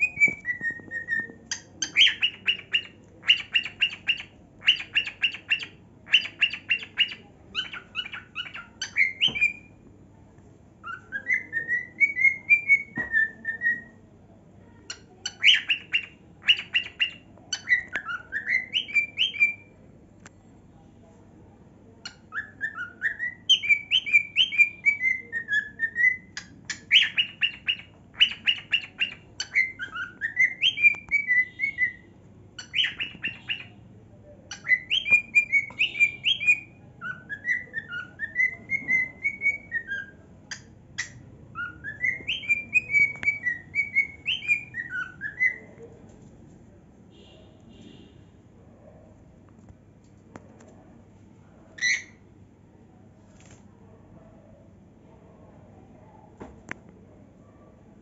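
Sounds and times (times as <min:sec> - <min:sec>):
cockatiel whistling and chirping: 0:00.0 - 0:09.8, 0:10.8 - 0:14.0, 0:15.3 - 0:19.7, 0:22.1 - 0:32.0, 0:32.6 - 0:33.7, 0:34.5 - 0:45.7, 0:51.8 - 0:52.1.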